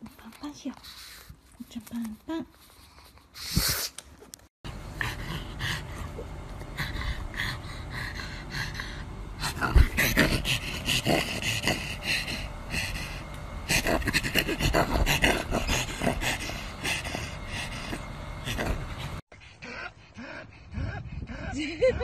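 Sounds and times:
dog panting: 0:04.9 - 0:22.0.

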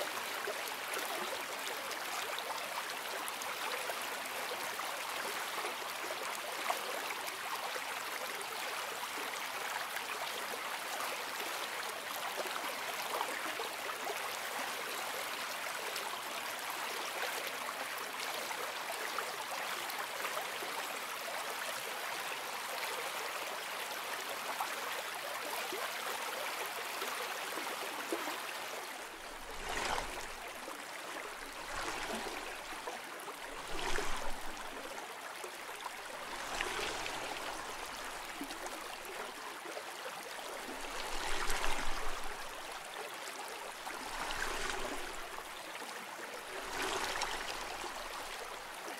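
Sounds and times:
running water: 0:27.4 - 0:48.9.

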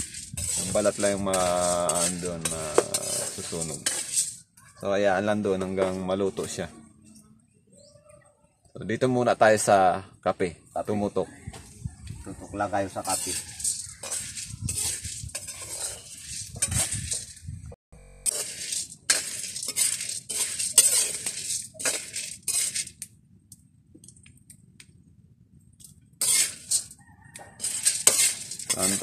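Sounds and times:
coffee beans rattling in a pan: 0:00.0 - 0:04.6, 0:12.9 - 0:17.4, 0:18.2 - 0:23.0, 0:26.2 - 0:29.0
metal spoon scraping a pan: 0:00.0 - 0:06.6, 0:12.6 - 0:17.5, 0:18.1 - 0:23.0, 0:26.2 - 0:29.0.

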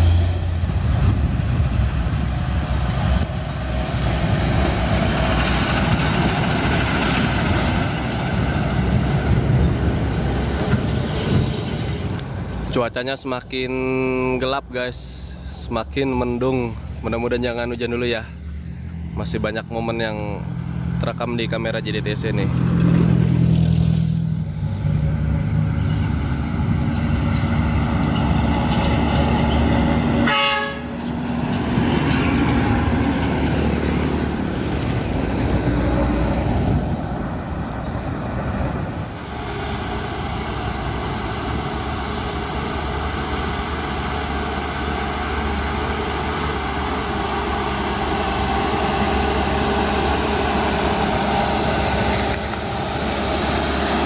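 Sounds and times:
diesel trucks driving past: 0:00.0 - 0:54.0
truck horn: 0:30.2 - 0:31.0.

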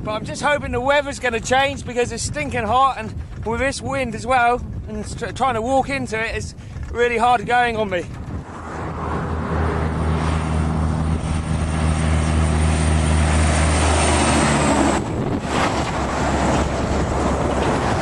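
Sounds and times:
rush of tyre and air noise: 0:06.5 - 0:18.0
low diesel engine drone: 0:08.0 - 0:18.0.

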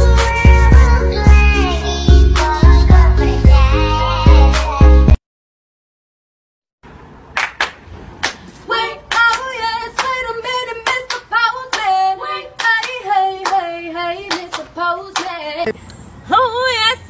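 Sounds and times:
person singing: 0:00.0 - 0:05.2
hand claps in rhythm: 0:07.4 - 0:08.4, 0:09.1 - 0:10.2, 0:10.8 - 0:12.0, 0:12.6 - 0:13.7, 0:14.3 - 0:15.4.

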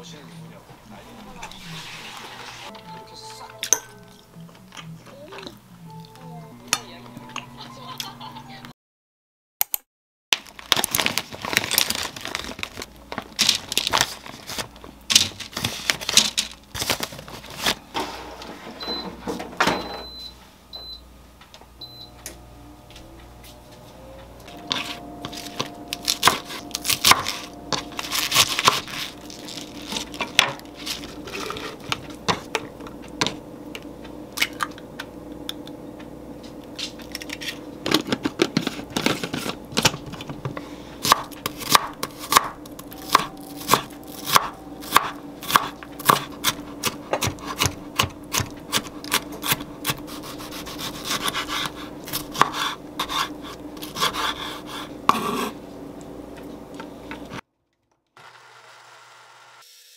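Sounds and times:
faint steady hum: 0:10.7 - 0:57.4
knife cutting on wooden board: 0:43.1 - 0:55.6.

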